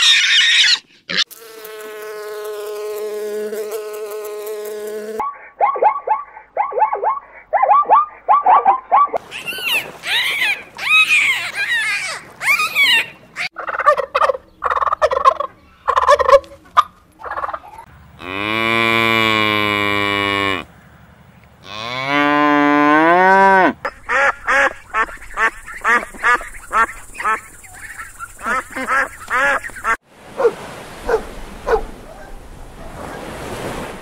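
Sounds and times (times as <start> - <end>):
dolphins whistling and chattering: 5.2 - 13.5
cow mooing: 18.2 - 20.7, 21.6 - 23.8
geese honking: 23.8 - 30.0.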